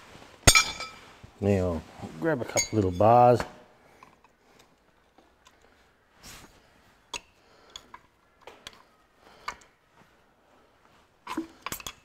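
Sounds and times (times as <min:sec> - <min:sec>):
faint metal clicks and taps: 0:07.1 - 0:09.8.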